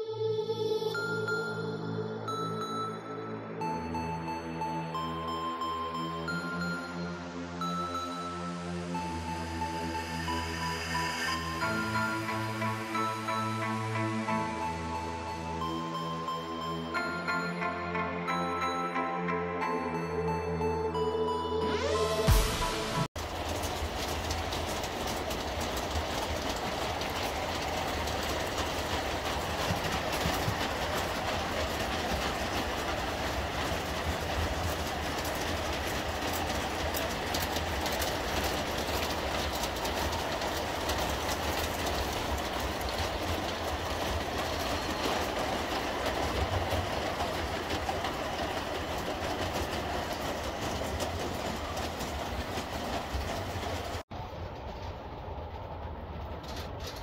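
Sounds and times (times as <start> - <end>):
model train wheels clicking: 23.2 - 54.0.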